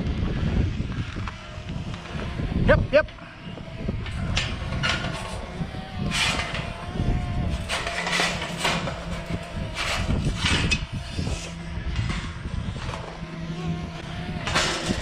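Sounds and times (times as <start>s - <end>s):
metal gate rattling and scraping: 3.6s - 13.4s, 14.4s - 15.0s.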